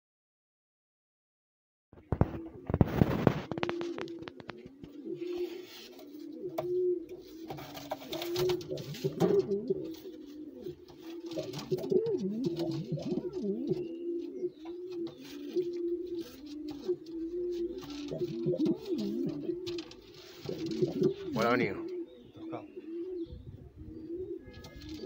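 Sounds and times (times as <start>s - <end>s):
pigeon cooing: 2.0s - 25.0s
knocks and rustles: 7.4s - 10.0s.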